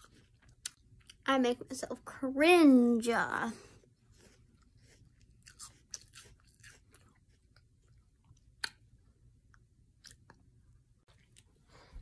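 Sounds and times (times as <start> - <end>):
person chewing: 0.0 - 1.2, 3.7 - 11.6.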